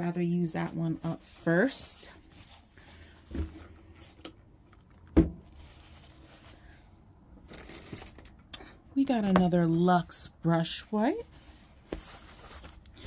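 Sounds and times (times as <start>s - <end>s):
packaging rustling: 4.6s - 8.5s, 11.3s - 13.0s.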